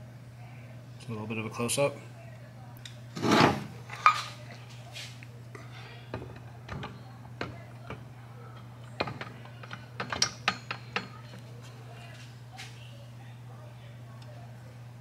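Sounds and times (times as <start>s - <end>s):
steady low hum: 0.0s - 15.0s
metal engine parts clinking: 9.0s - 11.4s.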